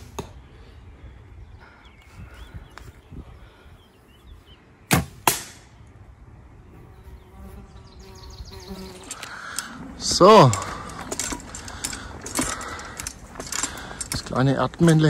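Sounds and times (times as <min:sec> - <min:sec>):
arrow hitting target: 0:04.9 - 0:05.7.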